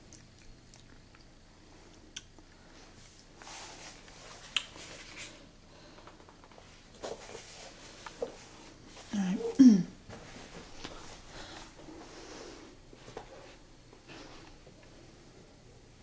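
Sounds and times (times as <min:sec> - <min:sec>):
soft handling rustles: 0:02.7 - 0:09.5, 0:10.1 - 0:15.2.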